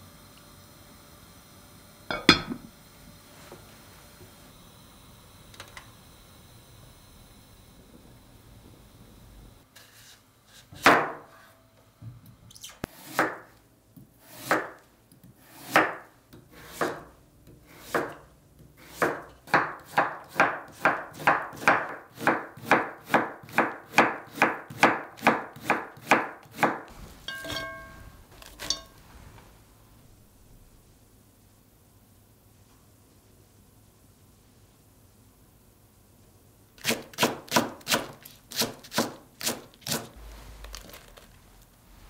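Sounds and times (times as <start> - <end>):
knife chopping on wooden board: 10.8 - 11.3, 13.0 - 13.5, 14.3 - 14.8, 15.5 - 17.1, 17.7 - 18.2, 18.8 - 27.8, 36.8 - 40.1
light ringing clinks: 27.3 - 29.0.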